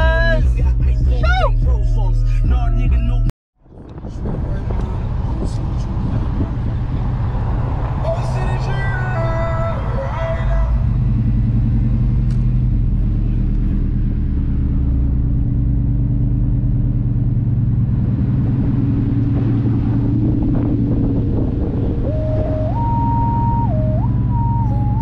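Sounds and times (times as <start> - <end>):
pickup truck engine rumbling: 0.0 - 25.0
road and wind noise: 3.6 - 25.0
simple electronic tune: 22.0 - 25.0.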